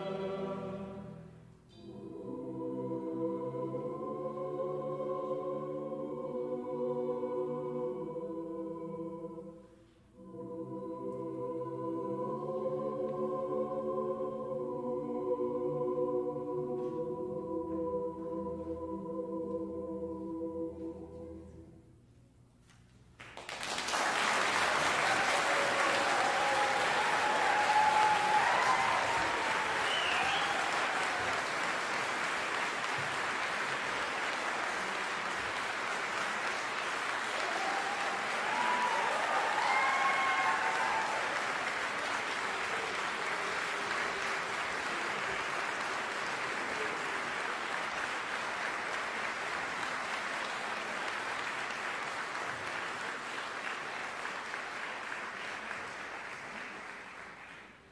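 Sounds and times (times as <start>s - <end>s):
audience applauding: 23.2s - 57.9s.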